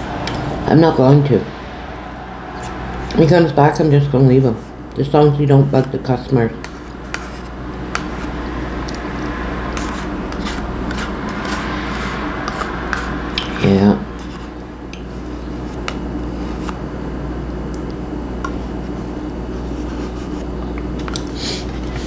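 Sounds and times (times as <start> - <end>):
background hum: 0.0 - 22.0
metal spoon scraping a dish: 6.5 - 16.8.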